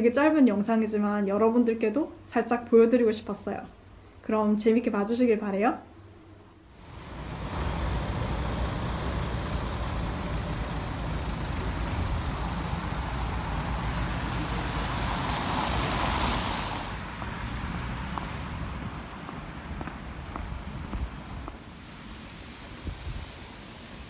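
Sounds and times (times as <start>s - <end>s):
tyres hissing on wet pavement: 6.8s - 20.5s
bus engine rumble: 6.8s - 21.4s.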